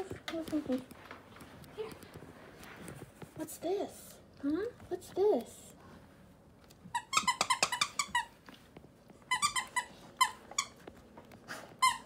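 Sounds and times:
toy squeaker squeaking: 7.0 - 8.3.

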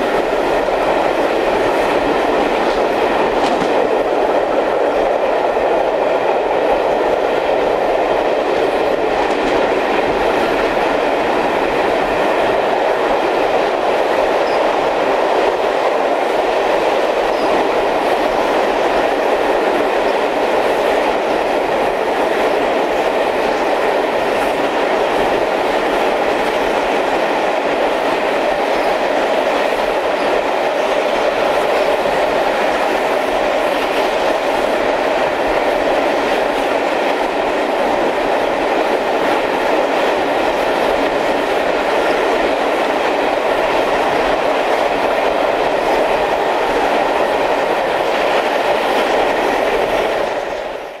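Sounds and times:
train wheels on rail: 0.0 - 51.0.

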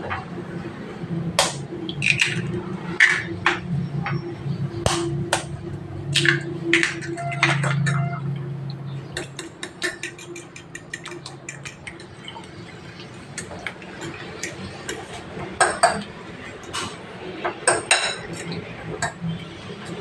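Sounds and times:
fork beating eggs on plate: 9.2 - 12.2.

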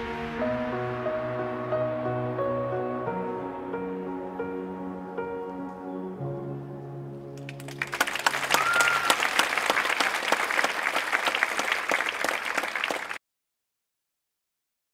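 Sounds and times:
audience applauding: 7.4 - 13.2.

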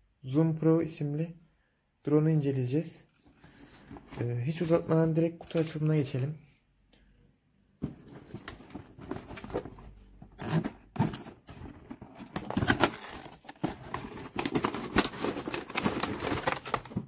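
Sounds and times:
plastic crinkling and rustling: 3.1 - 5.9, 7.8 - 17.0.

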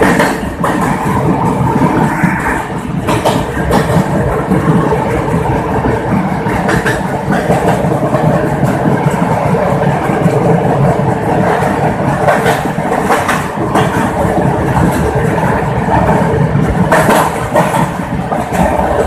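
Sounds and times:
train clattering: 0.0 - 19.0
train wheels rumbling on rails: 0.0 - 19.0
rushing air: 0.4 - 7.3.

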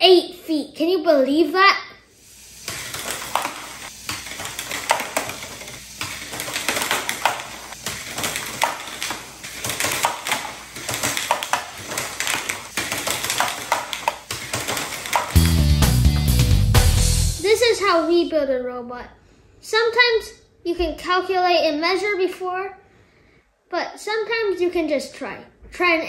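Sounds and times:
robot shooter firing discs: 2.6 - 16.0
plastic discs clattering on tiles: 2.7 - 15.6.

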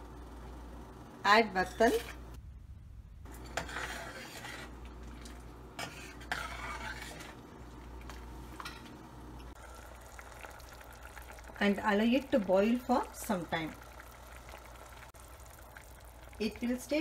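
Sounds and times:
ladle scraping a metal pan: 3.3 - 7.6.

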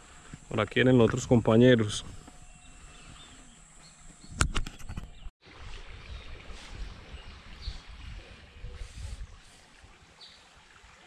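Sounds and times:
wind buffeting microphone: 4.1 - 10.0
river water running: 5.4 - 11.0.

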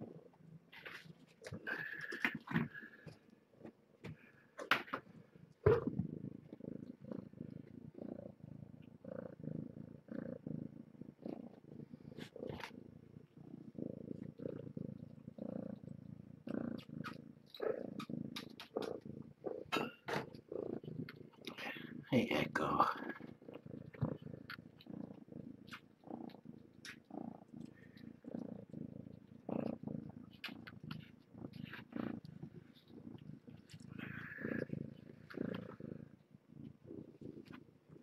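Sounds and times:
kitten purring: 0.0 - 38.0
faint clicks: 16.8 - 19.0, 25.7 - 35.7.

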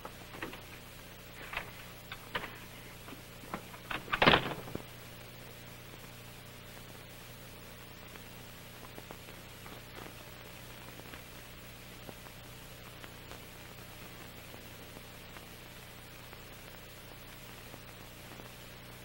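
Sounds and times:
recording hiss and hum: 0.0 - 19.0
door shutting with a bang: 3.5 - 4.9.

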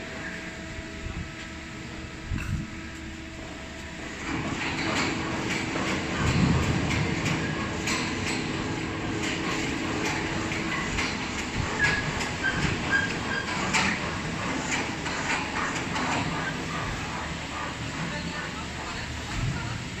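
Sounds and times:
press machine hum: 0.0 - 19.3
machine knocks and clicks: 4.2 - 17.2.

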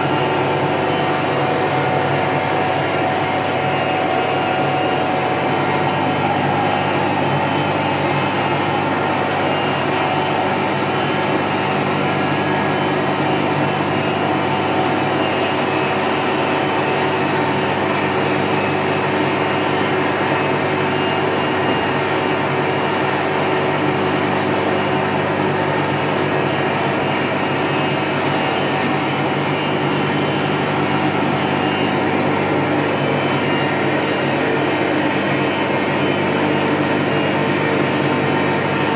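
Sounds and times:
glass edging machine humming: 0.0 - 38.9.

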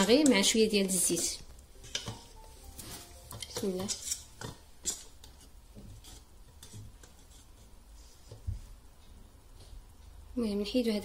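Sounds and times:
metal spoon clinking on steel bowl: 3.3 - 5.1.

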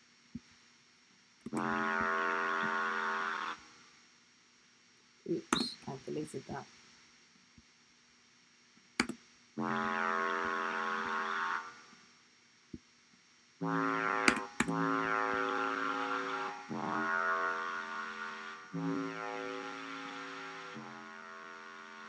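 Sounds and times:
sharp clicks: 9.0 - 9.2
synth bass held notes: 9.6 - 11.2, 13.6 - 21.7.

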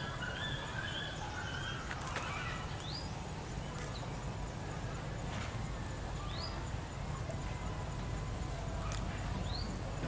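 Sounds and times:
light clicks of handled sticks: 1.8 - 4.6, 8.2 - 10.0.

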